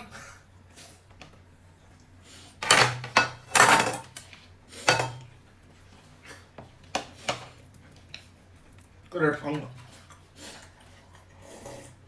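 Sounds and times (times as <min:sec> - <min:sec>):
dishes and utensils clinking: 0:02.6 - 0:04.2, 0:04.8 - 0:05.3.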